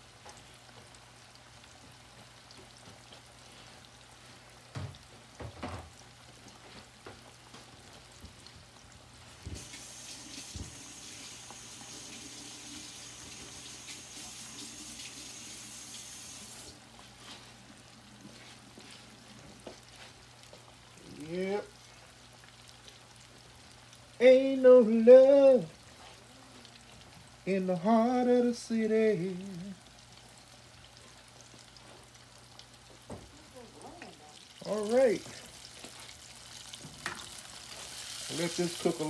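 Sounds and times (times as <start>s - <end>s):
fish deep-frying in oil: 0.0s - 39.0s
high hiss with thin whine: 9.5s - 17.7s, 37.0s - 39.0s.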